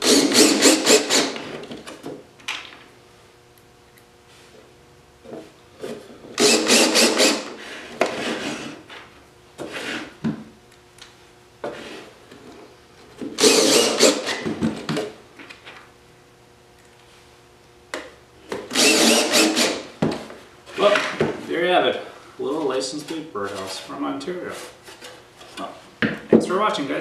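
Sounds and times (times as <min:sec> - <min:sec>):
cordless drill driving screws: 0:00.0 - 0:01.5, 0:06.4 - 0:07.6, 0:13.4 - 0:14.4, 0:18.7 - 0:19.9.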